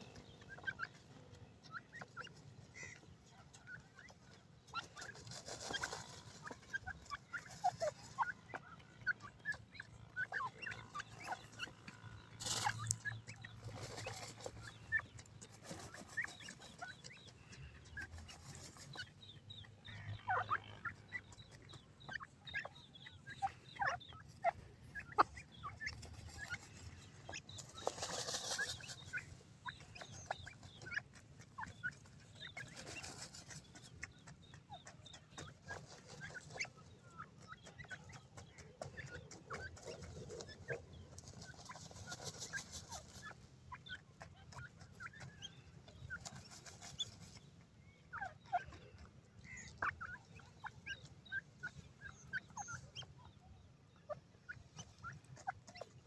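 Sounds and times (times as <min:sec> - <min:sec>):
bird calls: 0:00.0 - 0:56.0
birds scratching in dirt: 0:00.0 - 0:56.0
wings fluttering in dirt: 0:25.9 - 0:29.3.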